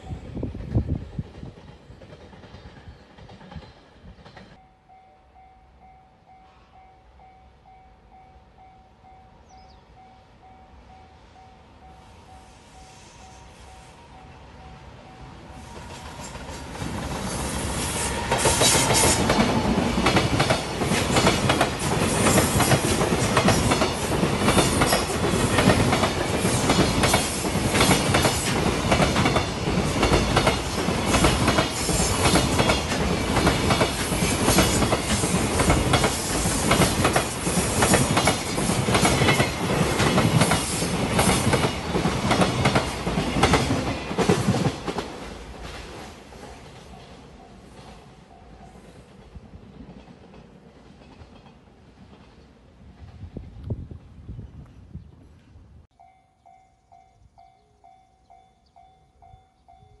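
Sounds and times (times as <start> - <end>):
electric locomotive passing: 0.0 - 60.0
train wheels clattering over rail joints: 16.1 - 47.2.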